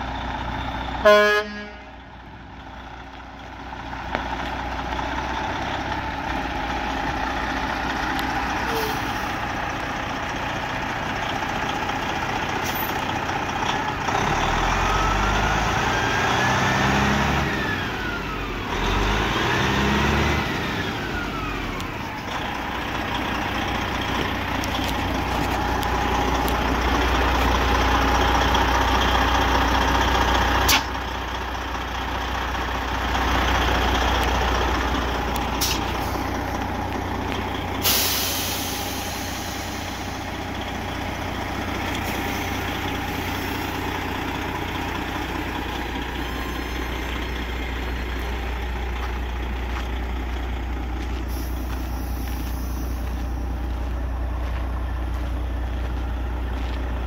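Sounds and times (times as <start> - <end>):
diesel truck engine idling: 0.0 - 57.0
sharp click: 30.7 - 30.9.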